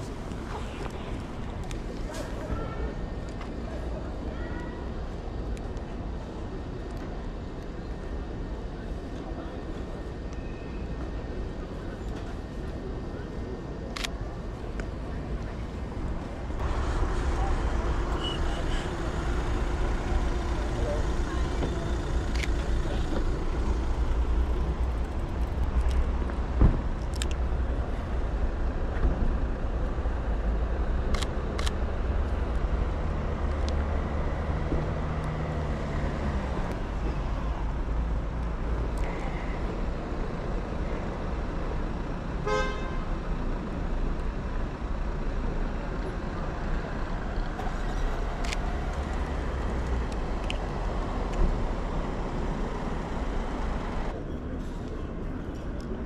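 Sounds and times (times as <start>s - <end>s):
street traffic rumble: 0.0s - 56.0s
thump: 26.6s - 26.8s.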